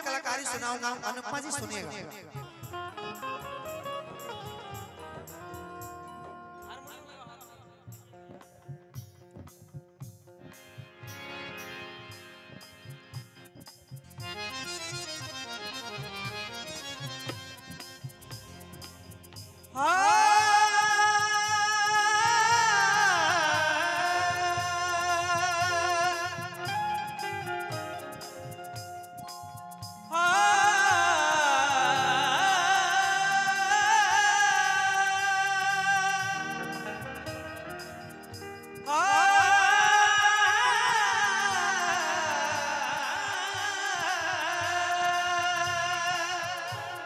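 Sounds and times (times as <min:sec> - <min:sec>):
faint percussion: 0:00.0 - 0:47.0
music with low drum beat: 0:01.4 - 0:47.0
man singing sustained note: 0:30.1 - 0:37.7.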